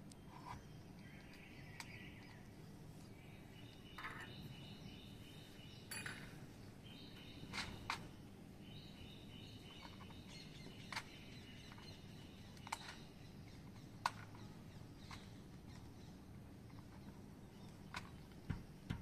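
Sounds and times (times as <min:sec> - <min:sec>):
outdoor background noise: 0:00.0 - 0:19.0
bird chirps: 0:00.1 - 0:18.3.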